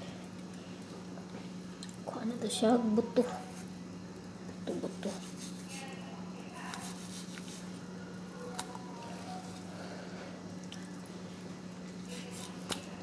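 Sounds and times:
knife squishing through fish: 4.9 - 5.9, 6.6 - 7.8, 12.0 - 13.0.

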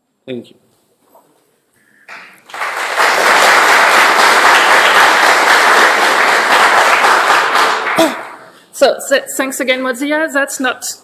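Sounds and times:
audience applauding: 2.1 - 8.6.

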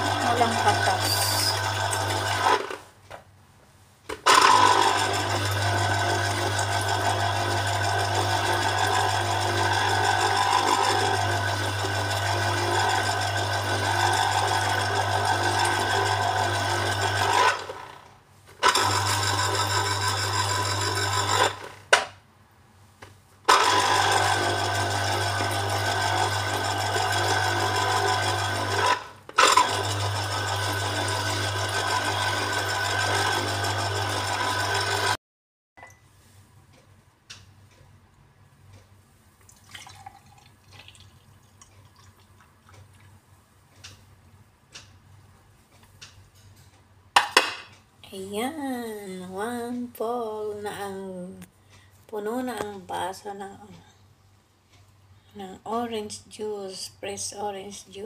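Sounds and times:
electric juicer motor humming: 0.0 - 2.8, 4.2 - 21.9, 23.5 - 35.2.

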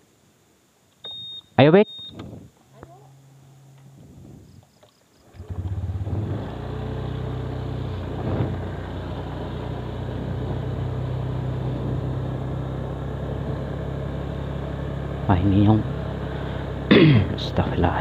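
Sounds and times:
motorcycle engine: 5.2 - 18.0.

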